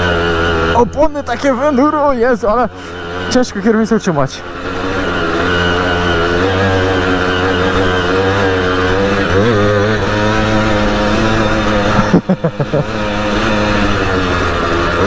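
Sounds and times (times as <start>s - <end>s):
moped two-stroke engine running: 0.0s - 15.0s.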